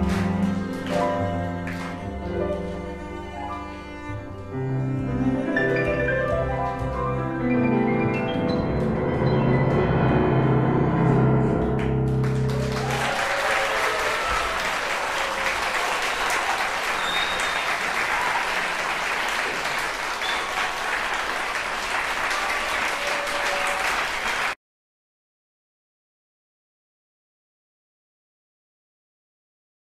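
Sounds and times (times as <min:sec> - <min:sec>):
audience applause: 0:00.0 - 0:02.2, 0:11.8 - 0:24.6
piano cello and bass chord: 0:00.0 - 0:13.0.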